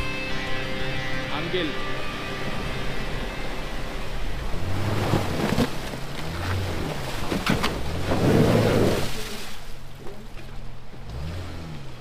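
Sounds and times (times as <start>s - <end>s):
tyres rushing through snow: 3.0s - 12.0s.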